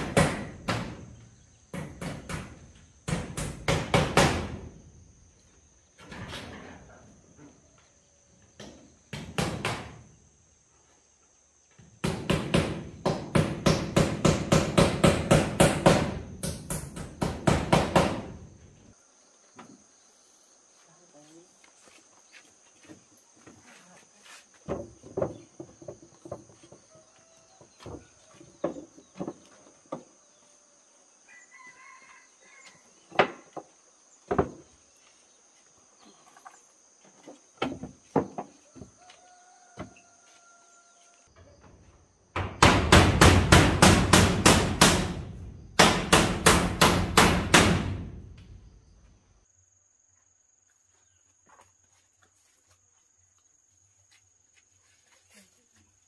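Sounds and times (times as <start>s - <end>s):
insect drone: 0.1s - 56.0s
loud hammer blows: 42.4s - 48.0s.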